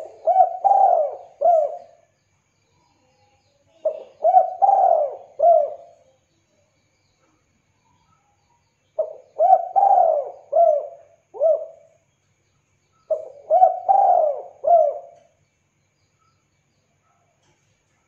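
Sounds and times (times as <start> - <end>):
dove cooing: 0.0 - 2.1, 3.8 - 6.0, 9.0 - 12.0, 13.1 - 15.3.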